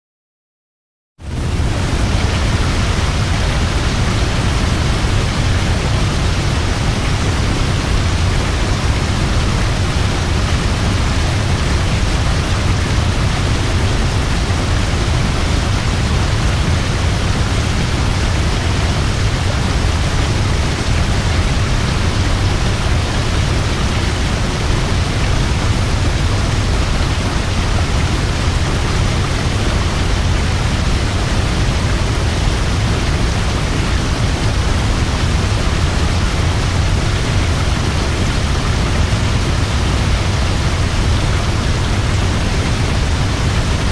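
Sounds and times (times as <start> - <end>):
waterfall roaring: 1.2 - 43.9.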